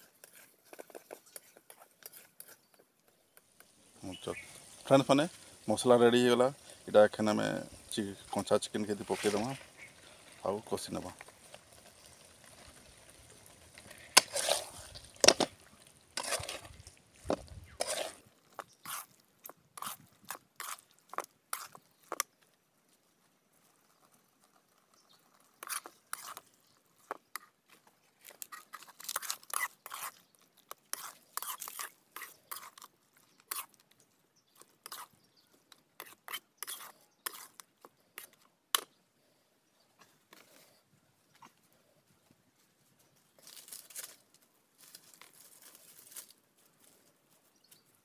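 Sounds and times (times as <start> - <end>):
metal spatula scraping steel pan: 14.2 - 15.5, 16.2 - 16.7, 17.8 - 18.2.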